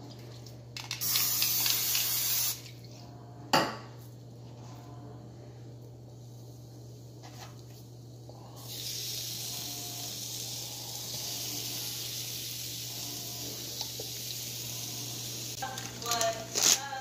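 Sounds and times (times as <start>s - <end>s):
low steady hum: 2.6s - 17.0s.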